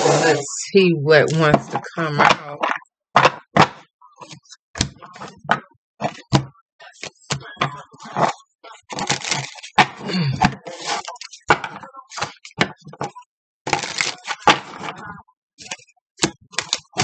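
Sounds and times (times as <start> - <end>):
cards being shuffled: 13.7 - 14.9.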